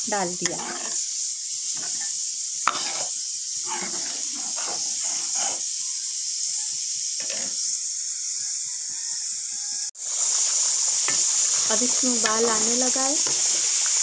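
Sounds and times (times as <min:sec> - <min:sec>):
gravy hissing in a pan: 0:00.0 - 0:14.0
ladle stirring: 0:00.5 - 0:01.0.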